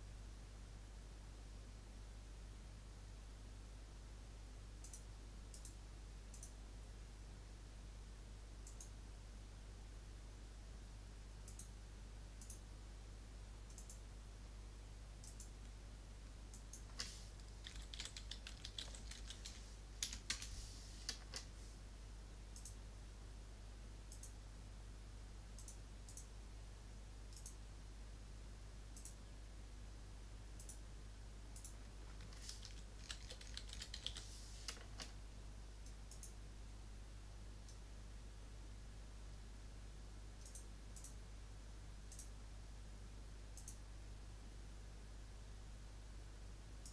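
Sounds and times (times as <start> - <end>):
low electrical hum: 0.0 - 46.9
mouse clicks: 4.8 - 6.6, 8.6 - 9.0, 11.4 - 11.8, 12.4 - 12.6, 13.7 - 14.0, 15.2 - 15.8, 22.6 - 22.8, 24.1 - 24.4, 25.6 - 26.3, 27.3 - 27.6, 29.0 - 29.2, 30.6 - 30.8, 31.6 - 35.1, 35.8 - 36.4, 40.4 - 41.2, 42.1 - 42.3, 43.6 - 43.8
keyboard typing: 16.5 - 21.5, 31.6 - 35.2.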